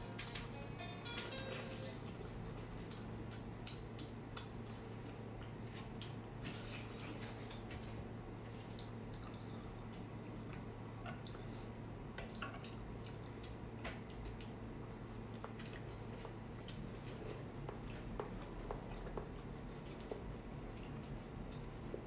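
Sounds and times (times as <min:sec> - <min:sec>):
steady low hum: 0:00.0 - 0:22.0
wet clicks and squishes of eating: 0:02.1 - 0:06.2, 0:07.3 - 0:11.5, 0:12.2 - 0:16.9, 0:17.6 - 0:22.0.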